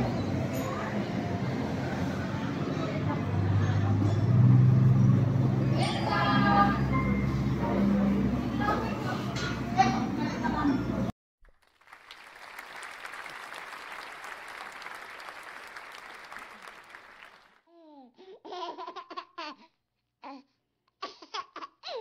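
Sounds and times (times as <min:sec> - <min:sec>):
crowd chatter: 0:00.0 - 0:11.1
applause: 0:11.5 - 0:17.6.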